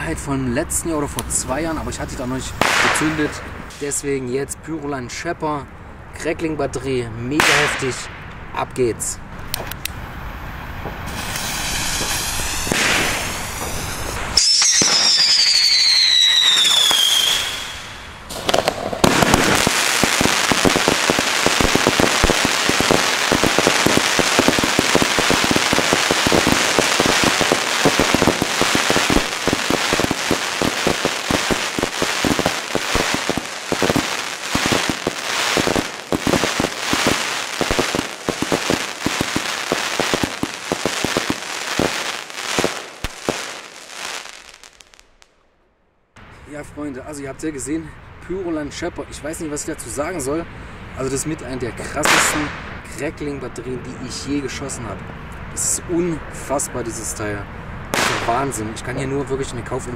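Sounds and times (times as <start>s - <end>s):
firework crackling pops: 2.6s - 3.8s, 7.4s - 8.2s, 10.8s - 45.3s, 52.0s - 52.8s, 57.9s - 58.6s
high whistle falling in pitch: 14.4s - 18.1s.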